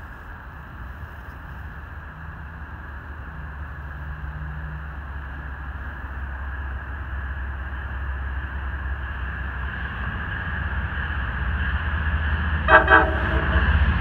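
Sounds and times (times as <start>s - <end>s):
diesel locomotive rumble: 0.0s - 14.0s
train horn blast: 12.6s - 14.0s.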